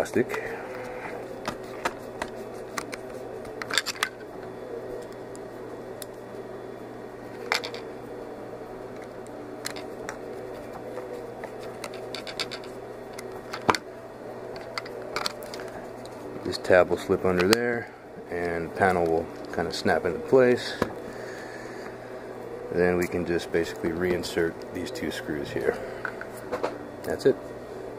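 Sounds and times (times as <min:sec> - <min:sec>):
steady low hum: 0:00.0 - 0:27.9
plastic parts being handled: 0:00.2 - 0:04.3, 0:09.0 - 0:13.8.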